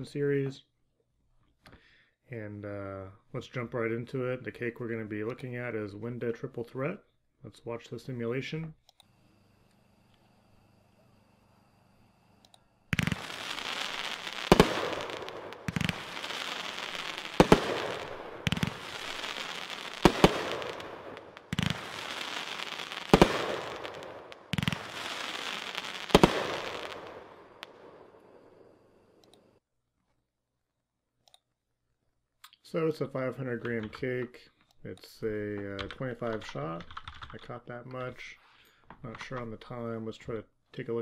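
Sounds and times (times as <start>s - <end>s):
firework launch thumps: 12.9s - 28.1s
sharp firework reports: 12.9s - 28.8s
firework crackling: 12.9s - 29.0s.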